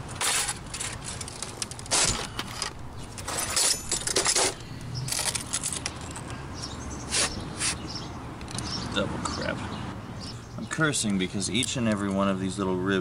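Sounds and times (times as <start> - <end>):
metal clinks and scrapes: 0.1 - 6.3.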